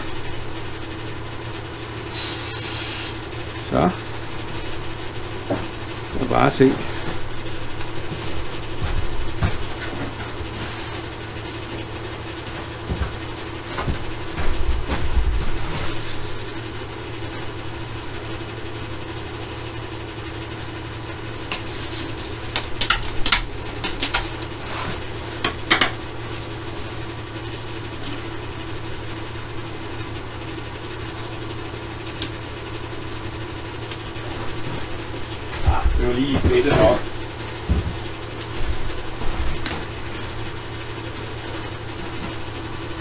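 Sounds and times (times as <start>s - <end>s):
wood lathe motor hum: 0.0s - 6.2s
brief high whine: 22.6s - 24.3s.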